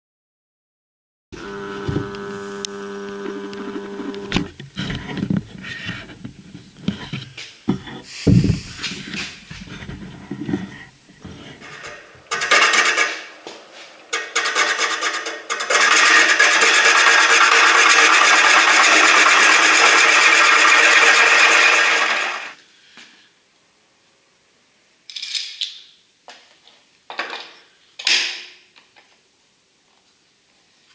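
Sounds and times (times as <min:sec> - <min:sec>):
gouge scraping wood on lathe: 0:01.4 - 0:22.6
knocks and handling thuds: 0:04.4 - 0:12.3.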